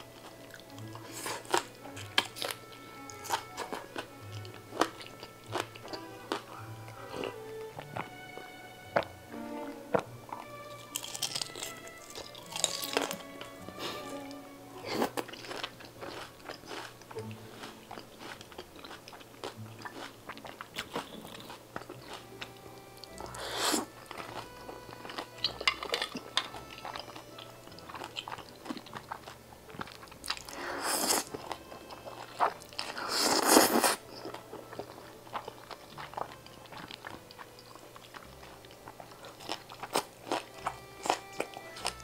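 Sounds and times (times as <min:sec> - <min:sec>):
crunchy bites and chewing: 0:00.0 - 0:08.1, 0:09.9 - 0:42.0
loud slurping of noodles: 0:23.3 - 0:23.9, 0:30.5 - 0:31.3, 0:33.0 - 0:34.0.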